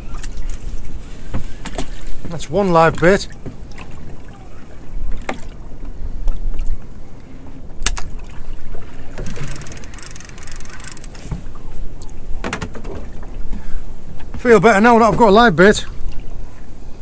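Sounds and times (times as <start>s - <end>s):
water lapping against boat: 0.0s - 17.0s
fishing reel rattle: 9.2s - 11.2s.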